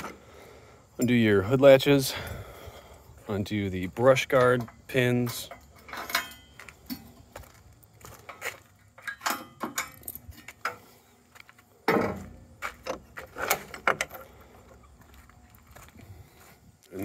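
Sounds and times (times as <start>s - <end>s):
metallic clinks and rattles: 4.4s - 7.2s, 8.3s - 10.8s.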